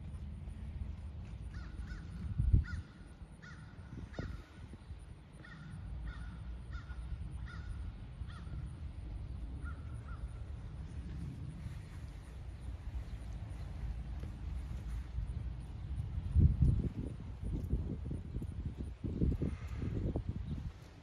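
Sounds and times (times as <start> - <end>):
steady low rumble: 0.0 - 21.0
crows cawing: 1.5 - 4.6, 5.4 - 8.6.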